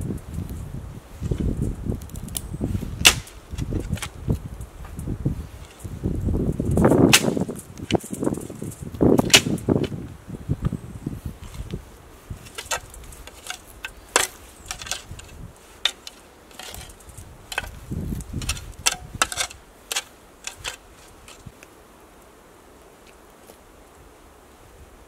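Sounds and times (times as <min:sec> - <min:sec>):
metal shovel scraping soil: 0:02.9 - 0:04.2, 0:11.4 - 0:21.5.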